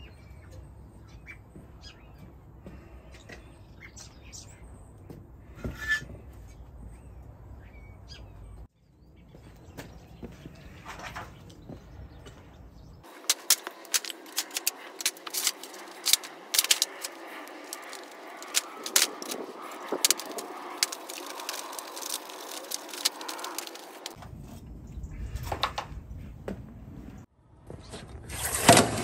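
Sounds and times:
sand clicking and crackling: 13.0 - 24.2.

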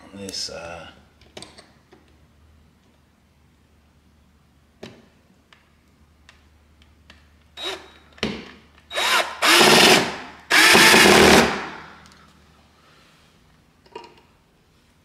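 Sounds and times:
cordless drill driving a screw: 7.6 - 8.0, 8.9 - 11.7.

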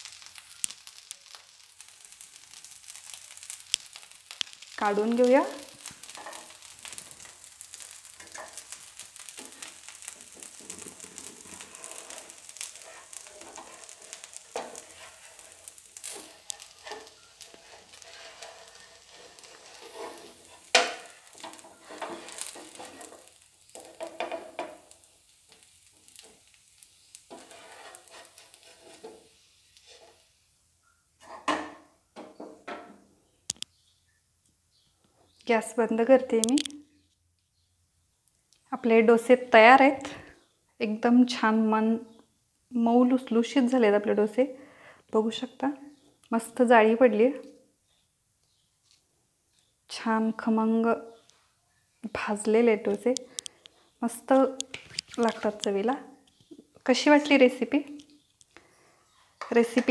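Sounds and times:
food sizzling on a hot pan: 0.0 - 34.0, 34.7 - 37.6, 38.3 - 59.9
wooden spatula scraping pan: 4.6 - 25.0, 27.2 - 30.3, 31.2 - 32.9.

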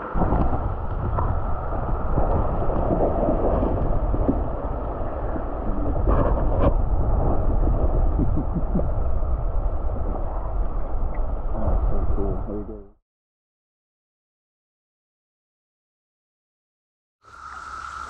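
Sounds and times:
underwater rushing water: 0.0 - 12.5.

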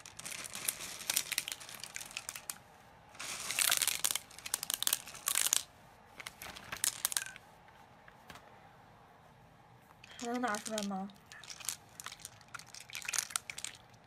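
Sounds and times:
beads pouring clicks: 0.0 - 2.6, 3.2 - 7.4, 10.0 - 14.0
plastic bag crinkling: 0.0 - 2.6, 3.2 - 7.4, 10.0 - 14.0.

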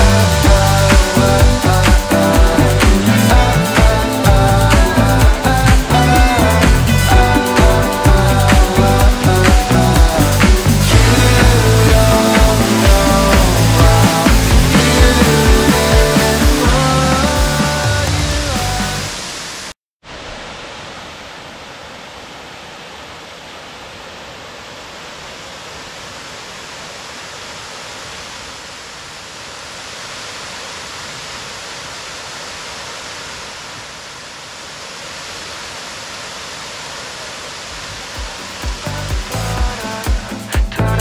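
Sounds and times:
rock music: 0.0 - 19.2, 38.7 - 41.0
waterfall roaring: 0.0 - 40.2.

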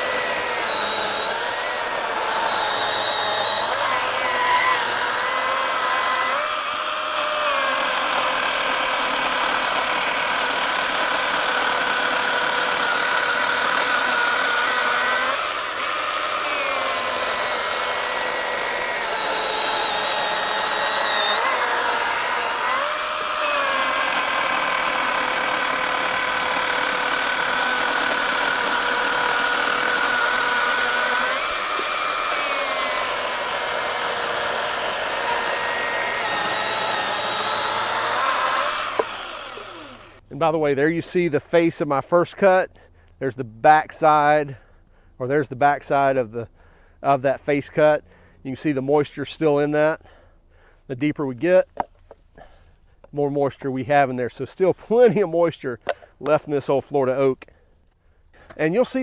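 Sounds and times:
cordless chainsaw cutting log: 0.0 - 40.3.

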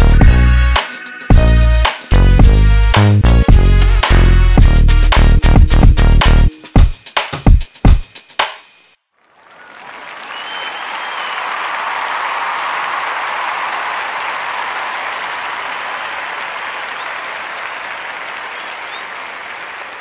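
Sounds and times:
crowd applauding: 9.2 - 20.0.

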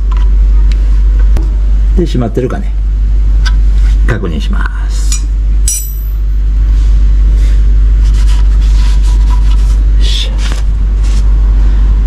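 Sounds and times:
loud low rumble: 10.0 - 12.0.

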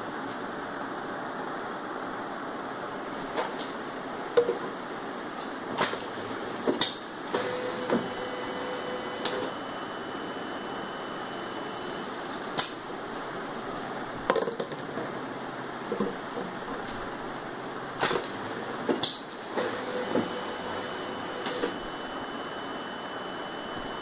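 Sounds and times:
labeling machine running: 5.7 - 13.8, 16.4 - 24.0
thin motor whine: 6.0 - 14.1, 18.1 - 24.0.

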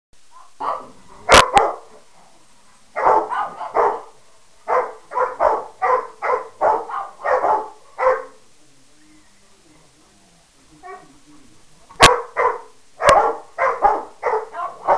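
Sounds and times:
dogs barking: 0.4 - 2.0, 3.0 - 8.4, 10.8 - 11.1, 12.0 - 14.9.

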